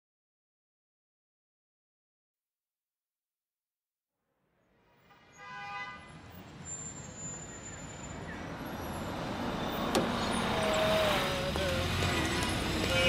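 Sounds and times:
street traffic noise: 0:04.8 - 0:13.0
car horn: 0:05.1 - 0:06.3.

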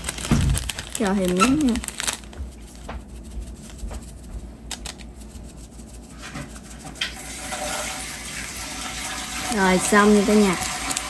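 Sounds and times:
plastic bag rustling: 0:00.0 - 0:11.0.

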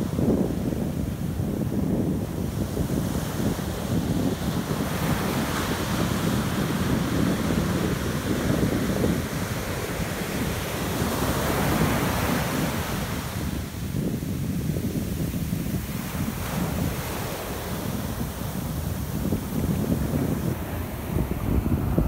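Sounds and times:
wind buffeting microphone: 0:00.0 - 0:22.0
ocean surf breaking: 0:14.9 - 0:22.0.

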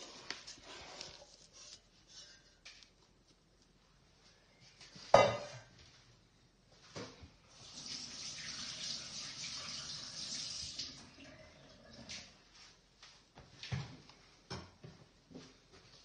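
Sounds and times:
running water: 0:07.5 - 0:12.4.

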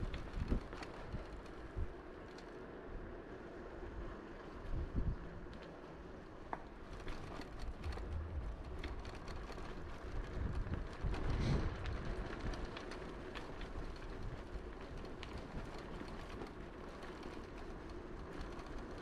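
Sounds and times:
bicycle rolling rumble: 0:00.0 - 0:19.0
bike clicks and rattles: 0:00.0 - 0:19.0
rush of air: 0:11.0 - 0:12.1.

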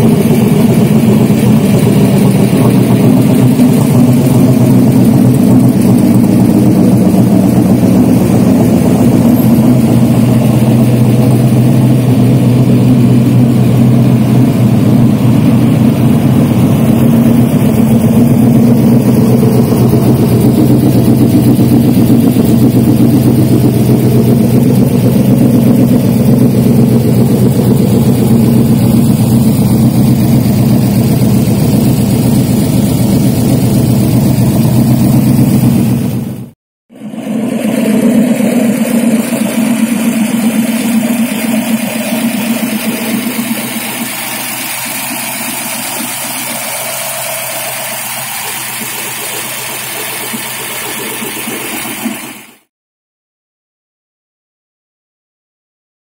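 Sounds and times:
car engine idling: 0:00.0 - 0:52.7.

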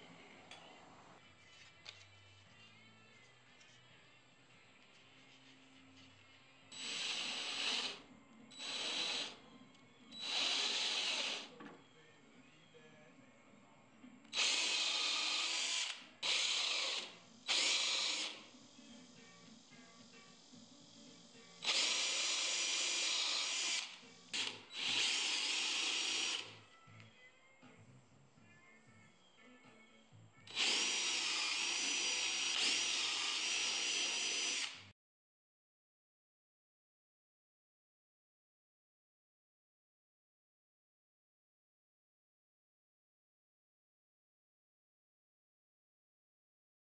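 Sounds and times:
cordless drill boring into wood: 0:06.7 - 0:08.0, 0:08.6 - 0:09.4, 0:10.2 - 0:11.6, 0:14.3 - 0:18.5, 0:21.6 - 0:26.6, 0:30.5 - 0:34.8.

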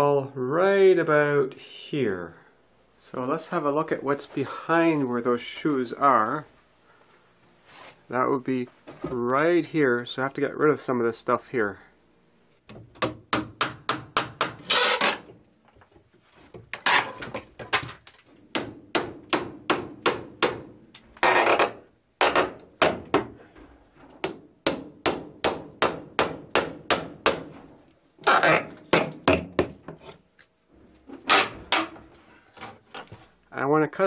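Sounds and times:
hammer striking pry bar: 0:13.0 - 0:15.2, 0:18.5 - 0:20.8, 0:24.2 - 0:27.5
wooden boards being pried off: 0:21.2 - 0:23.4, 0:31.2 - 0:32.0.

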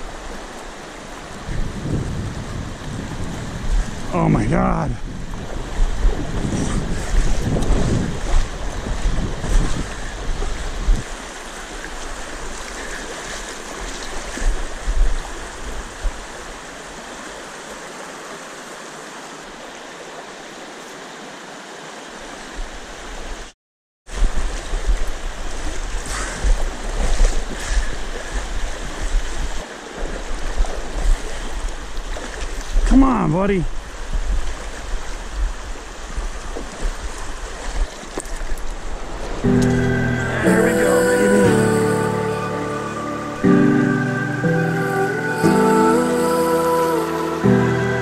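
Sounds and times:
river rushing over rocks: 0:00.0 - 0:23.5, 0:24.1 - 0:48.0
wind buffeting microphone: 0:01.0 - 0:11.2, 0:33.6 - 0:40.7.

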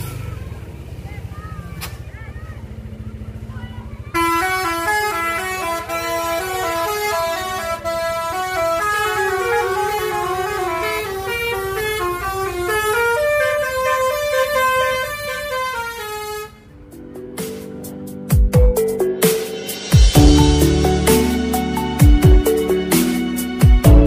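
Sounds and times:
bus engine rumble: 0:00.0 - 0:24.0
bus air horn playing a tune: 0:04.1 - 0:16.8.

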